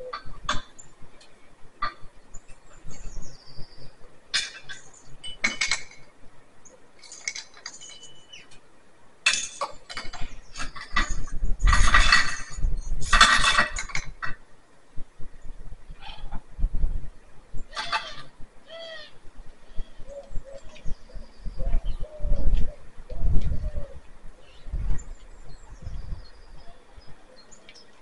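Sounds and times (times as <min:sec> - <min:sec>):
metal clinking and rattling: 0:07.0 - 0:08.3, 0:09.2 - 0:14.4.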